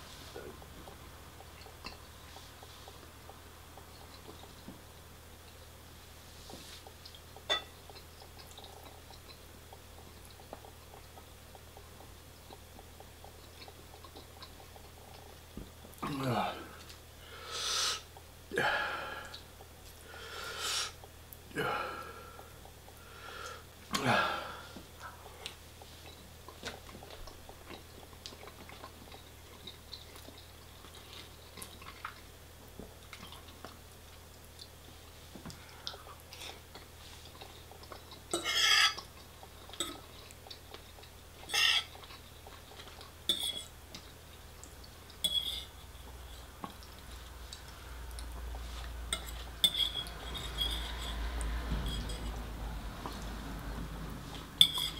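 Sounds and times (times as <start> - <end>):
cutlery clinking and scraping dishes: 43.3 - 43.7, 45.3 - 45.7, 49.2 - 52.4, 54.6 - 54.9.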